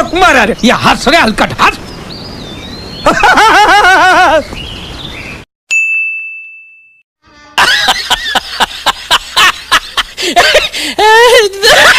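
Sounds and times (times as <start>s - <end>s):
bright ding: 5.7s - 7.0s.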